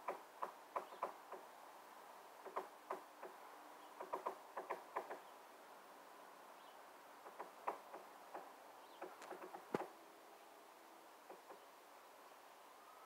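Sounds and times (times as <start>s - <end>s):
woodpecker pecking on wood: 0.0s - 1.5s, 2.4s - 3.4s, 4.0s - 5.2s, 7.2s - 10.0s, 11.2s - 11.6s.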